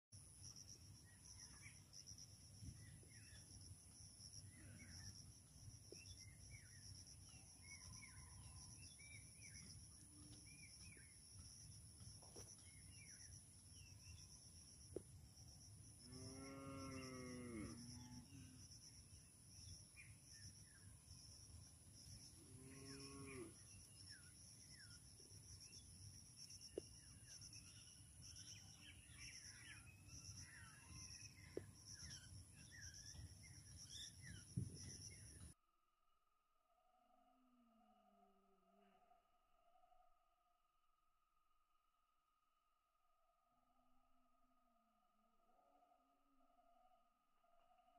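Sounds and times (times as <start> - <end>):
bird chirps: 1.0 - 14.6, 22.0 - 35.6
cow mooing: 16.1 - 18.6, 22.5 - 23.5.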